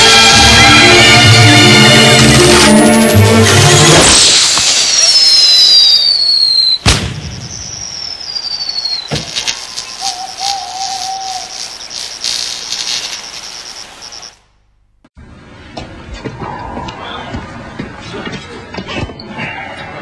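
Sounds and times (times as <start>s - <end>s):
high falling whistles: 4.0s - 14.4s
sharp bang: 6.8s - 7.8s
crickets chirping: 7.3s - 14.6s
wavering hoot: 9.8s - 11.8s.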